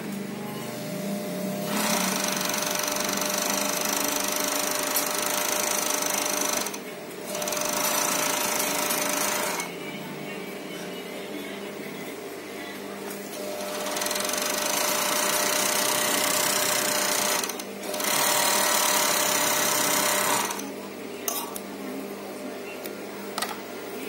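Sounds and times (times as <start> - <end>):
steady motor hum: 0.0 - 24.0
sewing machine stitching: 1.6 - 9.7, 13.4 - 20.7.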